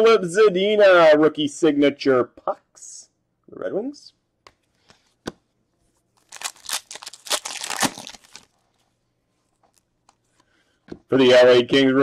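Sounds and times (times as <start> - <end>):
plastic wrapper tearing and crinkling: 6.2 - 8.7.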